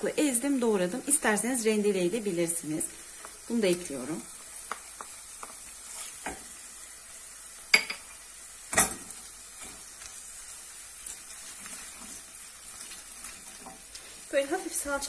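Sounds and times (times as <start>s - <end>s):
vegetables sizzling in hot oil: 0.0s - 15.0s
wooden spoon stirring in pot: 2.8s - 6.7s, 8.8s - 15.0s.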